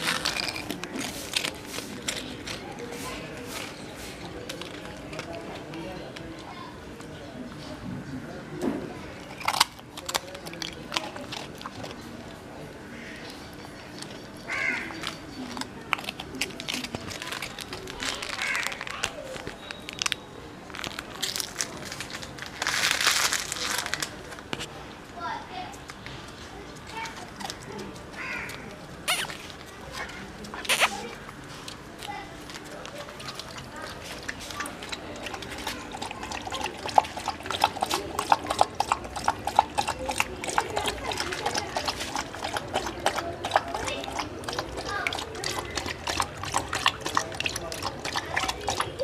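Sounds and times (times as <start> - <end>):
dog crunching food: 0.0 - 7.0, 9.1 - 12.6, 13.2 - 24.7, 25.8 - 49.0
dog lapping water: 9.2 - 13.2, 32.7 - 49.0.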